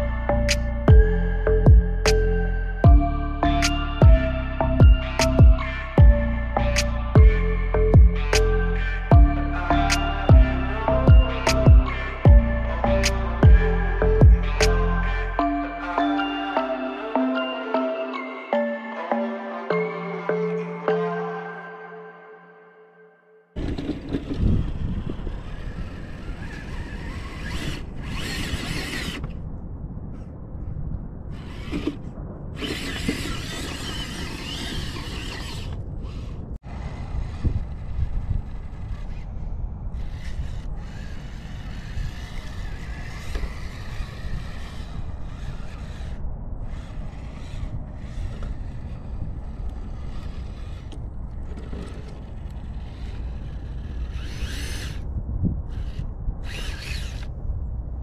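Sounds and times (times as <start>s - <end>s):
steady low rumble: 0.0s - 15.4s, 23.6s - 58.0s
electric motor whirring: 23.6s - 29.4s, 32.6s - 57.4s
stones scraping under tyres: 39.9s - 55.1s, 55.7s - 57.3s.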